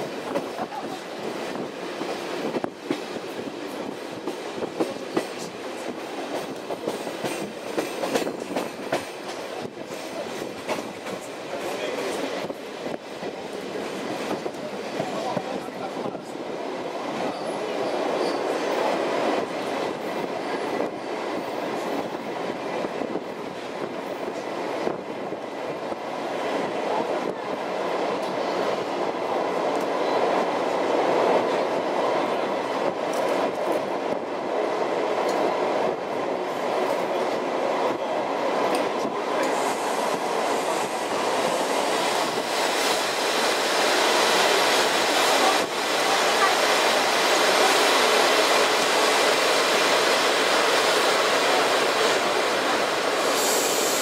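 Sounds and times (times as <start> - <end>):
train wheels rumbling on rails: 0.0 - 54.0
clacks over rail joints: 3.7 - 12.3
bright hissing: 53.2 - 54.0.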